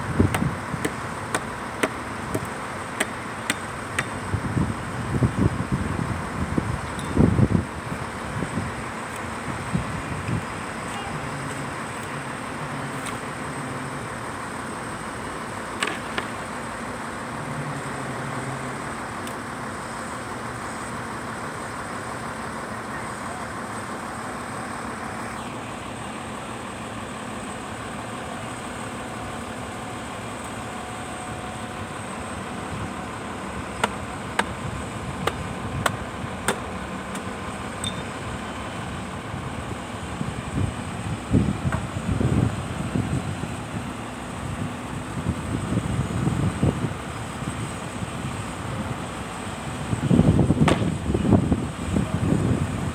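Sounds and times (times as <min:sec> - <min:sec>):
truck crane engine running: 0:00.0 - 0:52.9
sharp knocks: 0:50.6 - 0:50.9.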